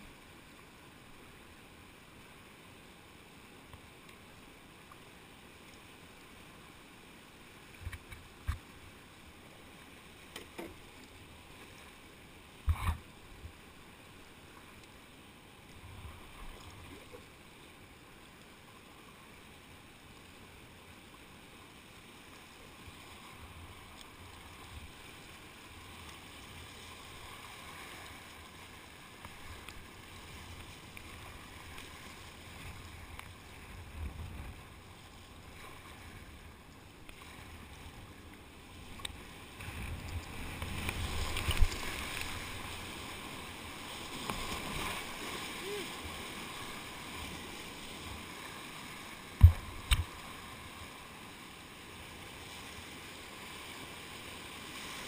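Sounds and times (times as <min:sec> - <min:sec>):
rushing whitewater: 0:00.0 - 0:55.0
paddle strokes splashing: 0:38.7 - 0:50.9.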